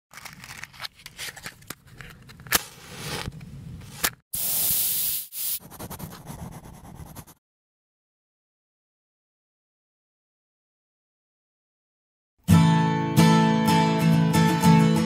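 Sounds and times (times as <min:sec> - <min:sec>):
loud spray-like hiss: 0:04.4 - 0:05.6
scratchy scraping and rubbing: 0:05.6 - 0:07.4.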